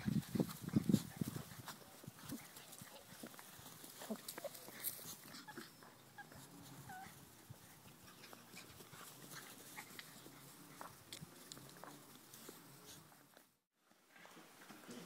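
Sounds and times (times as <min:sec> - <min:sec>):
rustles on grass: 0:00.0 - 0:05.6, 0:06.3 - 0:15.0
puppies whimpering and squeaking: 0:04.4 - 0:07.2.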